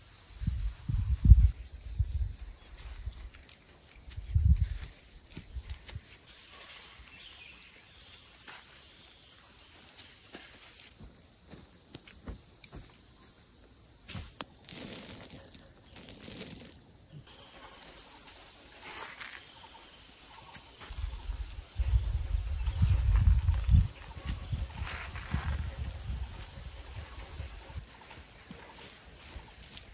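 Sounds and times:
rustling: 14.1 - 16.8
high-pitched insect drone: 16.4 - 29.9.

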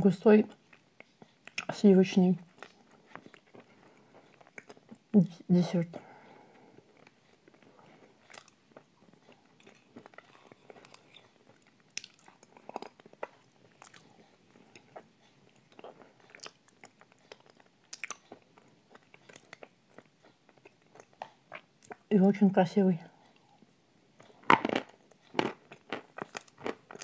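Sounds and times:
wet mouth clicks and smacks: 1.4 - 1.7
spooning and chewing dessert: 2.4 - 5.2, 6.0 - 22.1, 23.2 - 27.0.

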